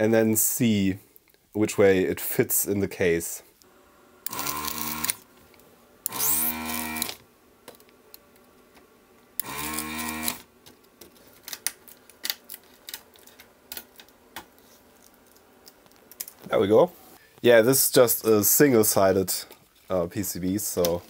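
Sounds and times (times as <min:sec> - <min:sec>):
desoldering pump humming and hissing: 0:03.6 - 0:11.1.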